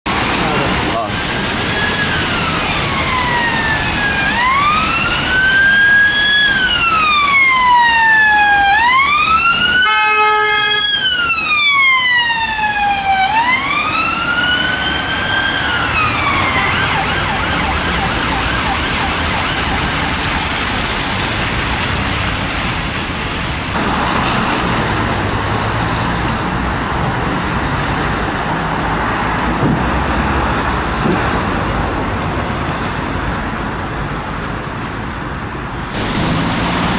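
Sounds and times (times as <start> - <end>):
road traffic noise: 0.0 - 36.9
emergency siren wailing: 0.4 - 21.5
siren steady tone: 1.6 - 20.9.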